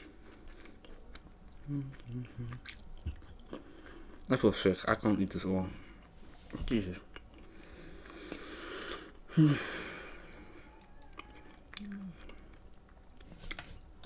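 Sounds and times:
person chewing: 0.0 - 4.3, 5.9 - 9.3, 10.1 - 13.8
soft hum: 5.6 - 14.0.

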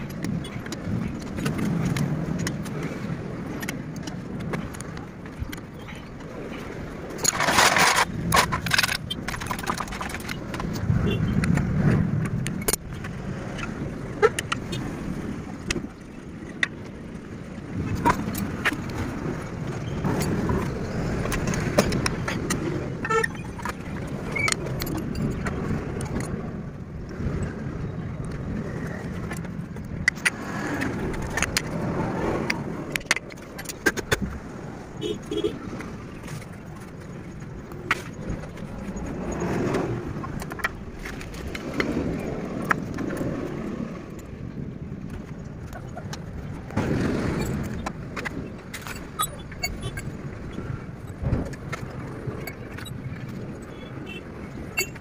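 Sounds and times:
road traffic: 0.0 - 55.0.

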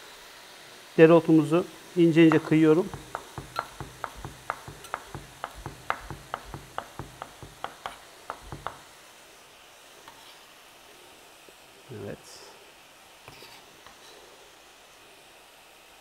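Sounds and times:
knife chopping on wooden board: 2.3 - 8.8.

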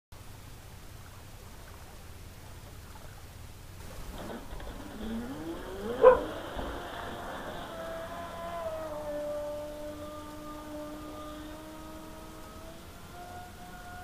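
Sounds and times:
electric boat motor whining: 3.8 - 14.0.

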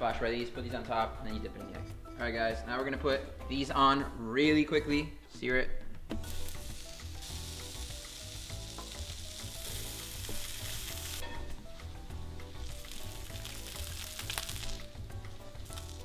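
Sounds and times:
meat sizzling in a skillet: 6.2 - 16.0.

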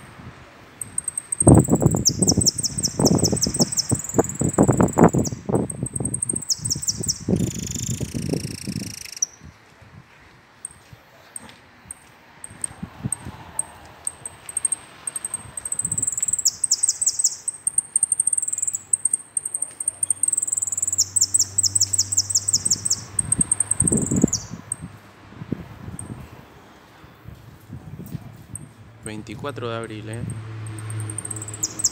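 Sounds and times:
bird chips: 0.8 - 9.4, 12.5 - 24.8, 30.2 - 31.9
finch singing: 0.8 - 9.4, 14.5 - 24.9, 30.7 - 31.9.

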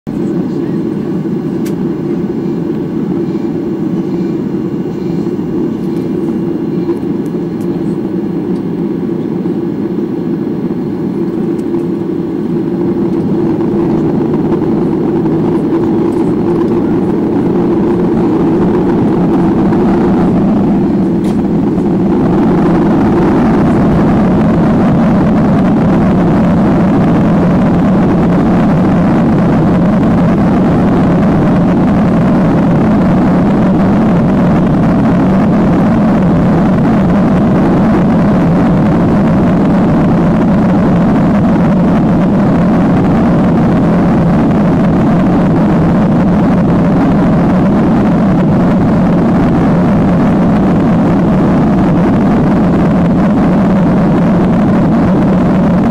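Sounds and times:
jet engine cabin rumble: 0.1 - 55.9.

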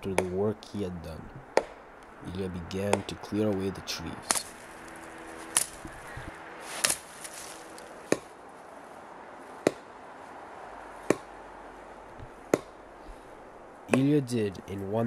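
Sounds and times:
axe chopping wood: 0.1 - 0.4, 1.5 - 1.8, 2.8 - 3.1, 4.2 - 4.5, 6.7 - 8.4, 9.6 - 9.9, 11.0 - 11.3, 12.4 - 12.8, 13.9 - 14.2.

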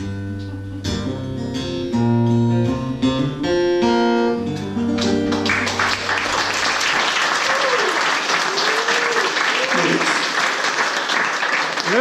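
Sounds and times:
acoustic guitar playing: 0.0 - 7.1
applause: 5.0 - 12.0.

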